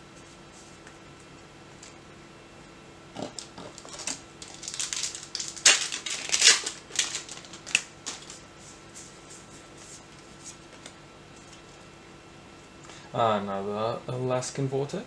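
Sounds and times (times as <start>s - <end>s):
card pack crinkling and rustling: 3.4s - 8.4s.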